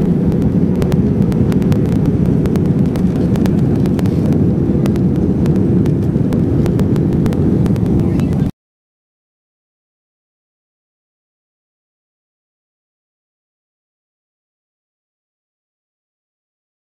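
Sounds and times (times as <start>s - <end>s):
airliner cabin rushing noise: 0.0s - 8.5s.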